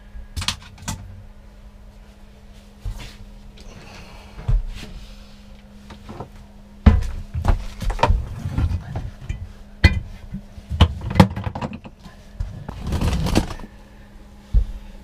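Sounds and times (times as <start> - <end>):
knocks and clunks of toilet handled: 6.2 - 12.0.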